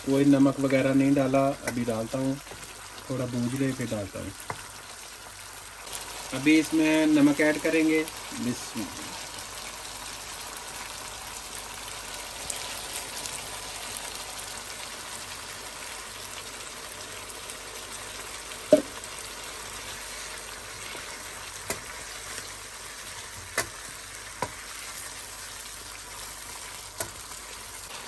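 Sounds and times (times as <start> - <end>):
potatoes sizzling in a pan: 0.0 - 28.0
wooden spoon knocking on pan: 18.7 - 19.0, 23.4 - 23.8, 24.4 - 24.6.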